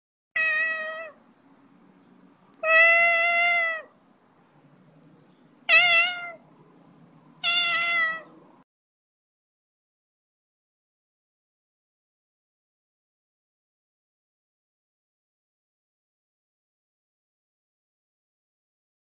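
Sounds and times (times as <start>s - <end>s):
cat meowing: 0.4s - 1.2s, 2.6s - 4.0s, 5.6s - 6.4s, 7.4s - 8.4s.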